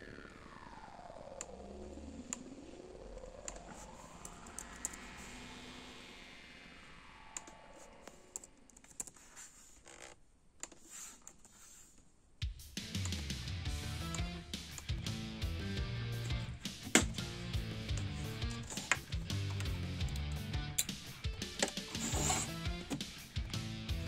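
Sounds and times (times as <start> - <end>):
sweeping synthesizer tone: 0.0 - 8.8
keyboard typing: 7.4 - 9.5, 17.9 - 23.6
loud music: 12.6 - 24.0.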